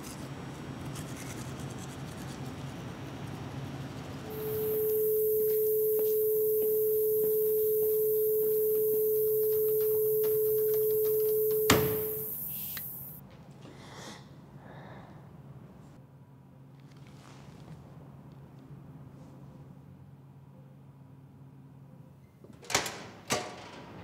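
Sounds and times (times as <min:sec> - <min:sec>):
high-pitched whine: 0:04.3 - 0:13.2
steady pure tone: 0:04.3 - 0:13.2.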